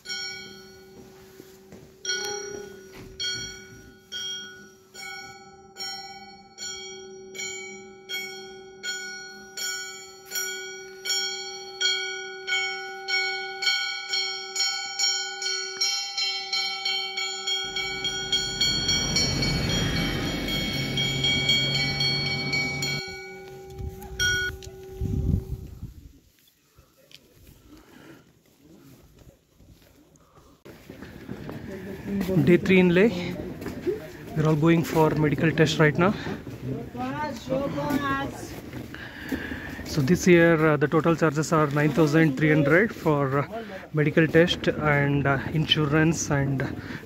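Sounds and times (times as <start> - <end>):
metal bell ringing: 0.0 - 25.9.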